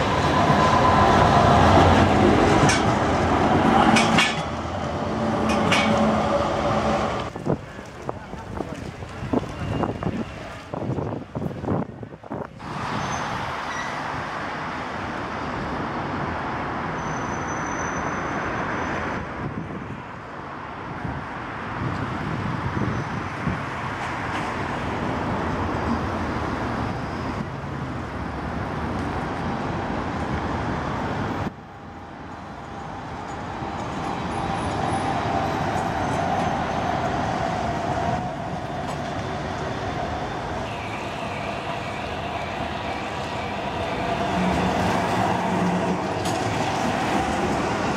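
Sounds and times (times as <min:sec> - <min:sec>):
tram wheel squeal: 0:00.0 - 0:07.3, 0:09.2 - 0:10.6, 0:12.7 - 0:14.1, 0:16.8 - 0:19.2, 0:25.6 - 0:27.6, 0:31.8 - 0:47.9
town traffic noise: 0:00.0 - 0:47.9
tram wheels rumbling on rail: 0:00.0 - 0:47.9.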